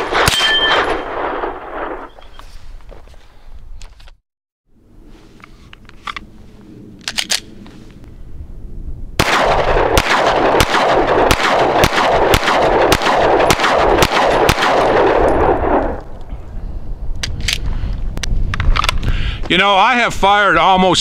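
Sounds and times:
pistol shots: 0:00.0 - 0:02.2, 0:09.2 - 0:16.0.

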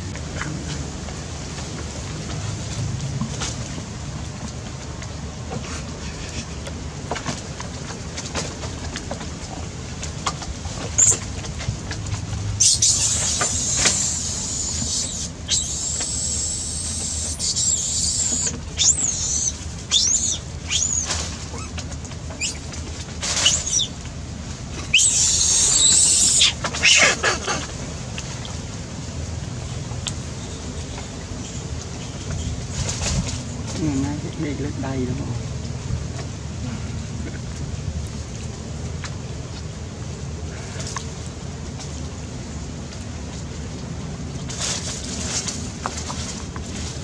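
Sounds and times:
monkeys squealing: 0:11.0 - 0:11.2, 0:12.6 - 0:21.8, 0:22.4 - 0:22.6, 0:23.3 - 0:23.9, 0:24.9 - 0:27.7.

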